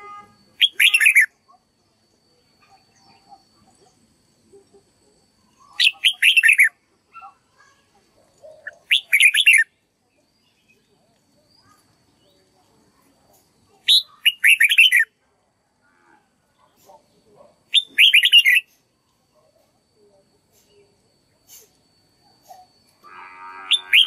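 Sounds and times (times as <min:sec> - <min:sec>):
bird singing: 0:00.0 - 0:15.2, 0:16.5 - 0:18.8, 0:23.6 - 0:24.0.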